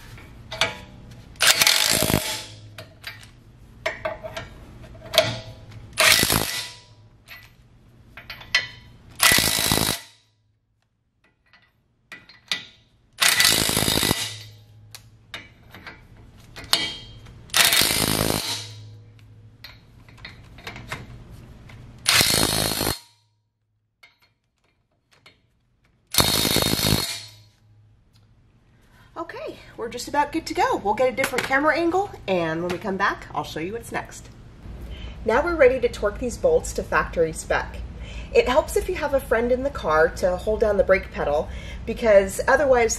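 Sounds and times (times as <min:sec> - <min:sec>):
impact wrench hammering nuts: 0:01.4 - 0:03.2, 0:05.1 - 0:07.5, 0:08.2 - 0:10.2, 0:11.2 - 0:21.0, 0:22.0 - 0:23.2, 0:26.1 - 0:27.6.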